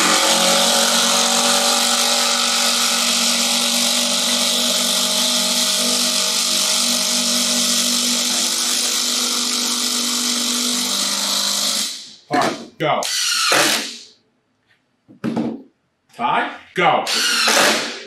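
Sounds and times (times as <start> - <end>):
impact drivers hammering: 17.1 - 18.0.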